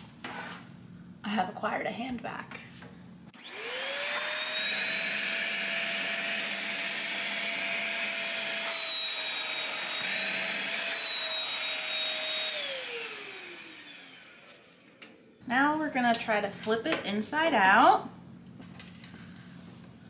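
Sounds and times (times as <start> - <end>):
handheld vacuum cleaner whine: 3.4 - 15.2.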